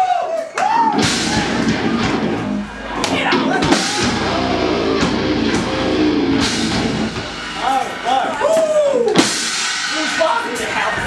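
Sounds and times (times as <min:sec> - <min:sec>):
heavy rock band playing: 0:00.9 - 0:11.0
distorted electric guitar chords: 0:01.0 - 0:08.5.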